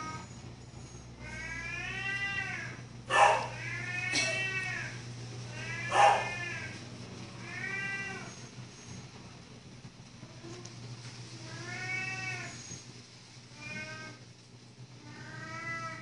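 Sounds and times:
cat meowing: 1.2s - 6.8s, 7.4s - 8.4s, 11.4s - 12.6s, 15.0s - 16.0s.

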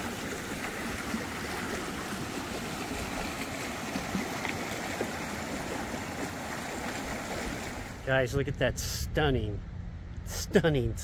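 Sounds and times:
creek rushing over rocks: 0.0s - 8.0s.

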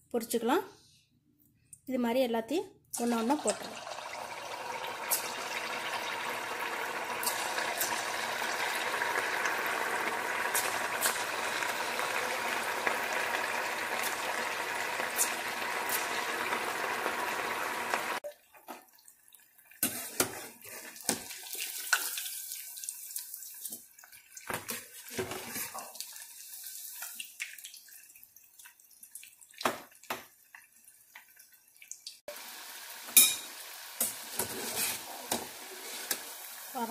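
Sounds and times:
deep-frying oil sizzling: 3.0s - 18.2s, 29.1s - 36.9s
oil crackling: 3.8s - 18.2s.

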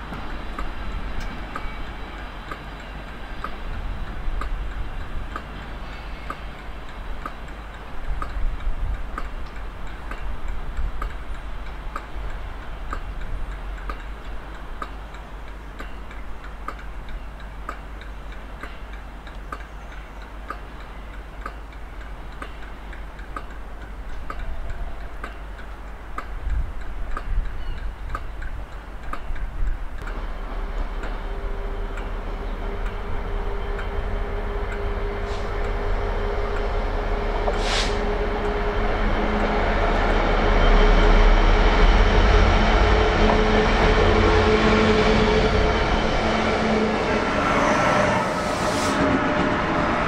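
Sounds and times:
steady ticking: 0.0s - 40.3s
low rumble: 29.6s - 50.0s.

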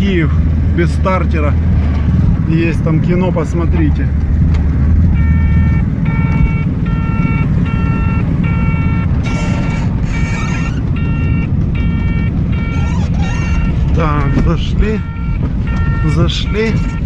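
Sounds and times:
car engine drone: 0.0s - 17.0s
electronic buzzer beeping: 5.2s - 13.8s.

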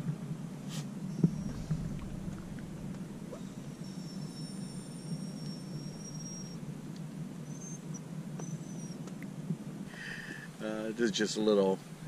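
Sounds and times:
steady low rumble: 0.0s - 11.1s
thin high-pitched whistles: 1.1s - 6.7s.

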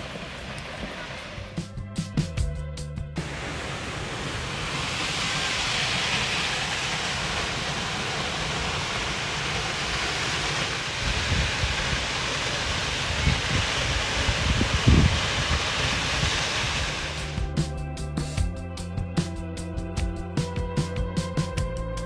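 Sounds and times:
waterfall rushing: 3.2s - 17.4s
wind buffeting microphone: 3.7s - 17.3s.

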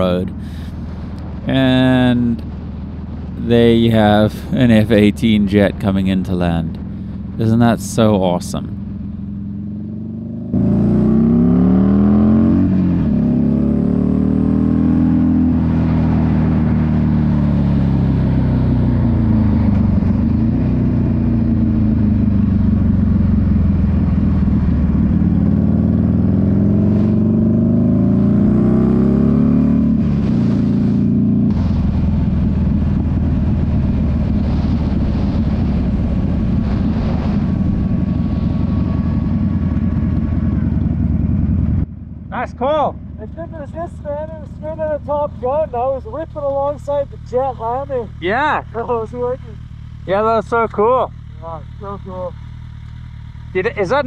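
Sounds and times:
motorcycle engine revving: 6.7s - 54.0s
wind rush: 29.9s - 41.9s.

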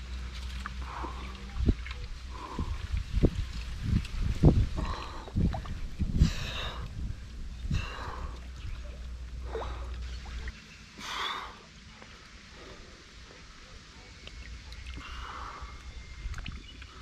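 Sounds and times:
low rumble: 0.0s - 17.0s
man breathing heavily: 2.3s - 3.2s, 4.5s - 8.6s, 11.0s - 11.7s, 12.3s - 13.7s, 15.0s - 15.9s.

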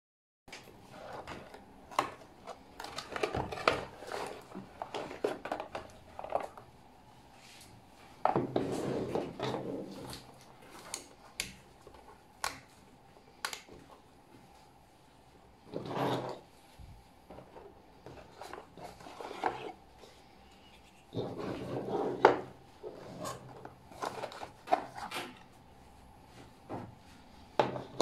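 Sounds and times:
cardboard rustling: 0.8s - 6.7s, 21.1s - 25.5s.

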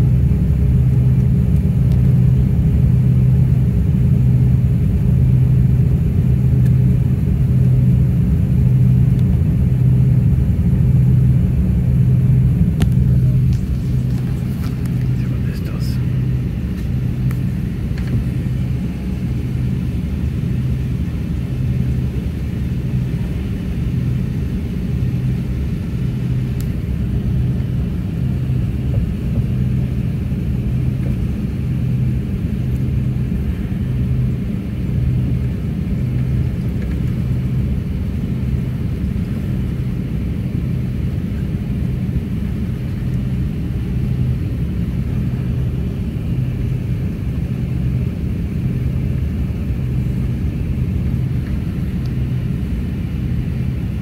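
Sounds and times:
airliner cabin rumble: 0.0s - 54.0s
pulsing low hum: 0.0s - 54.0s.

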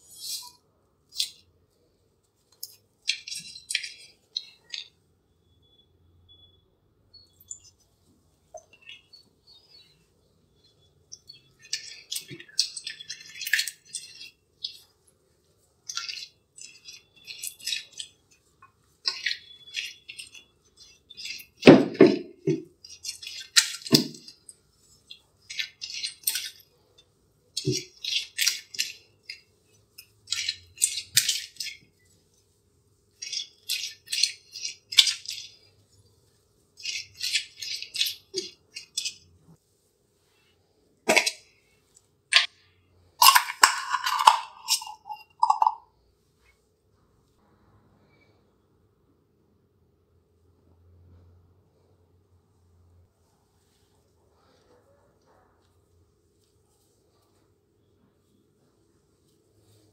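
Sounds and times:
spatula scraping glass bowl: 0.0s - 1.4s, 2.6s - 5.0s, 10.6s - 15.0s, 15.8s - 32.1s, 33.1s - 36.1s, 36.8s - 39.4s, 43.2s - 45.8s.

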